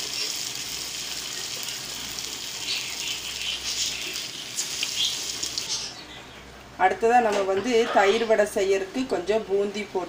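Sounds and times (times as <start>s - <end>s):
fritters deep-frying in oil: 0.0s - 6.0s.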